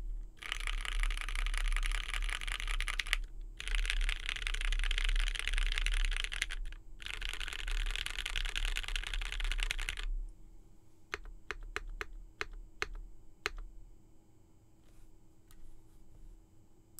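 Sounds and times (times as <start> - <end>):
mechanical keyboard typing: 0.4 - 10.1, 11.1 - 13.7.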